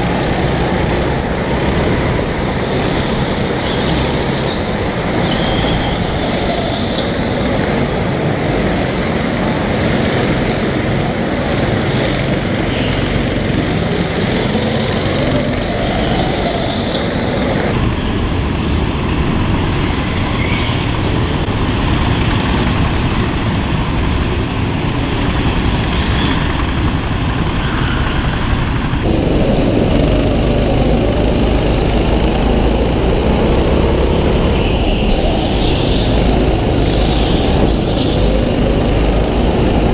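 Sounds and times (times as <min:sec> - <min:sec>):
go-kart engines racing: 0:00.0 - 0:17.8, 0:29.0 - 0:39.9.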